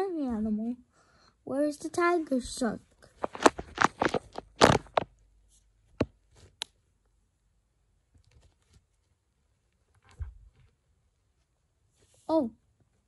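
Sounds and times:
plastic toys clicking and scraping: 3.0 - 5.1.

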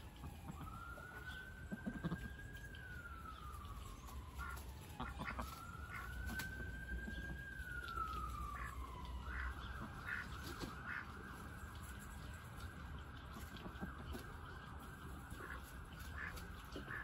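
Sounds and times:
siren wailing: 0.0 - 17.0
duck calls: 9.3 - 10.3.

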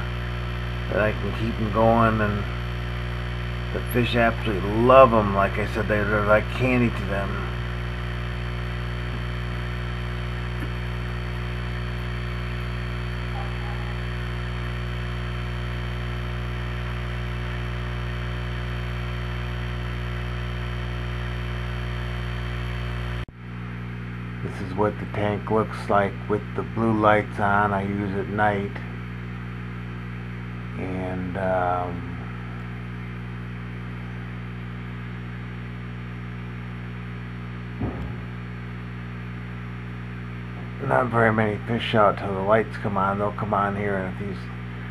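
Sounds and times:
low electrical hum: 0.0 - 44.9
short low sound: 37.7 - 38.5.

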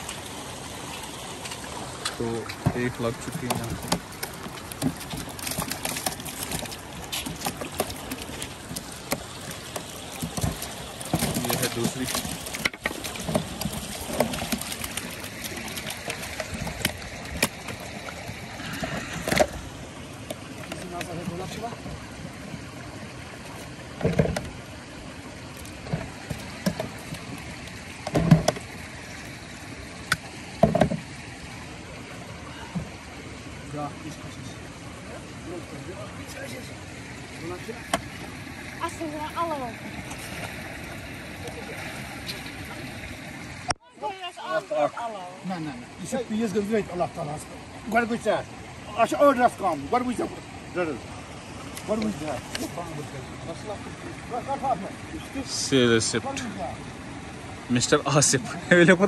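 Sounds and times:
fish splashing in tub: 0.0 - 31.5
flowing water rushing: 0.0 - 59.0.

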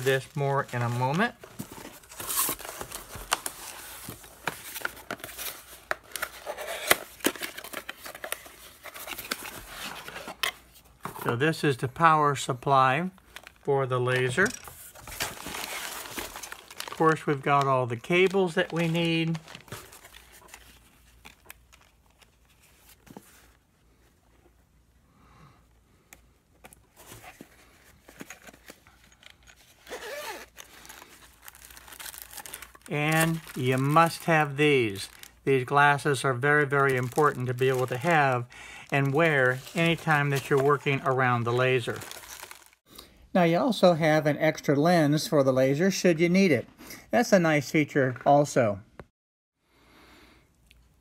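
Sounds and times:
hands rummaging in cardboard box: 14.3 - 21.8, 27.0 - 34.3, 41.9 - 42.7
zipper opening: 29.8 - 30.6.

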